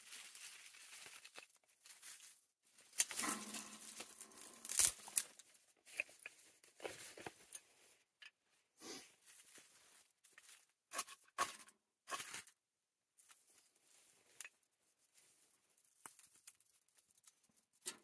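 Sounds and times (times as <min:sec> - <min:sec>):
kindling rustling and scraping: 0:00.2 - 0:07.8, 0:09.3 - 0:12.6
fire crackling with small snaps: 0:03.0 - 0:06.9.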